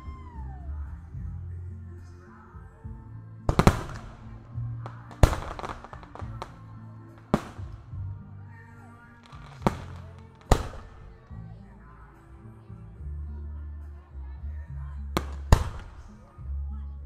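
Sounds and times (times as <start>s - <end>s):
music with low bass line: 0.0s - 17.0s
firework shells bursting: 3.5s - 8.0s, 9.2s - 11.2s, 15.2s - 16.1s
small firework pops: 3.5s - 8.1s, 9.2s - 11.3s, 15.2s - 16.4s.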